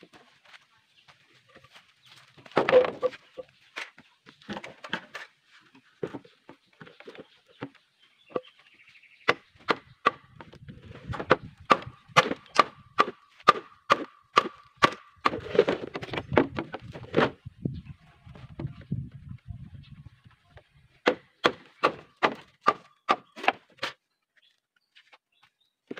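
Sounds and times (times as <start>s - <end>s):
bamboo pole scraping and knocking: 1.4s - 8.6s, 10.4s - 12.7s, 14.8s - 17.5s
machete chopping bamboo: 11.2s - 15.6s, 21.0s - 24.0s.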